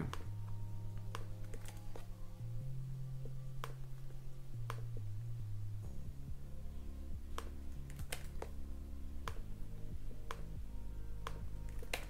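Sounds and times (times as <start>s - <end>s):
quiet background music: 0.0s - 12.0s
mouse and keyboard clicks: 1.0s - 2.1s, 7.4s - 8.6s, 11.3s - 12.0s.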